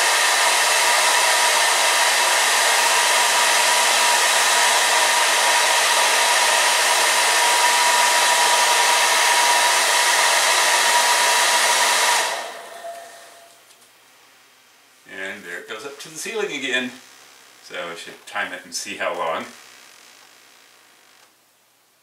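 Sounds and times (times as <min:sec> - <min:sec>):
hair dryer running: 0:00.0 - 0:13.6.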